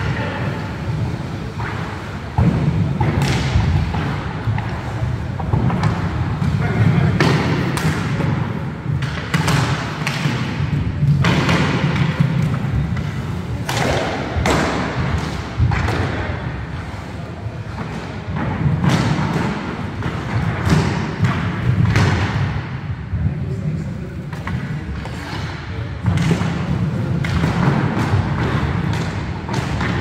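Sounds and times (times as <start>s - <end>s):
knocks of sticks and ball: 1.6s - 4.8s, 5.4s - 16.5s, 17.7s - 22.7s, 24.3s - 30.0s
skate wheels rumbling on wood: 26.2s - 30.0s.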